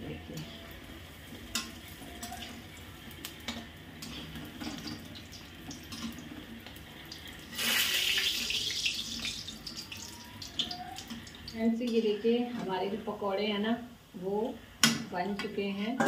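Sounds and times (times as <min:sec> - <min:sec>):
food sizzling in hot oil: 0:00.7 - 0:11.7.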